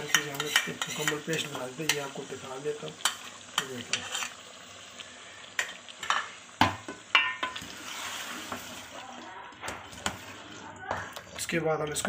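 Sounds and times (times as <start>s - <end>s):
ladle scraping against pot: 0.0s - 2.0s, 3.0s - 4.4s, 7.1s - 8.9s
chicken sizzling in a pot: 0.0s - 12.0s.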